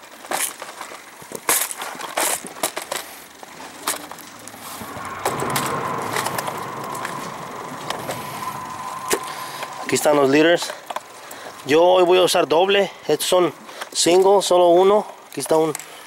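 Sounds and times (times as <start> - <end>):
steady hum: 2.8 - 14.8.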